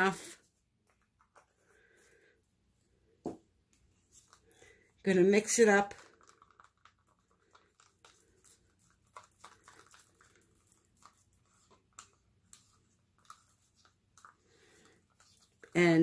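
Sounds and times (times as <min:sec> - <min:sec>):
stir stick scraping plastic cup: 0:03.8 - 0:16.0.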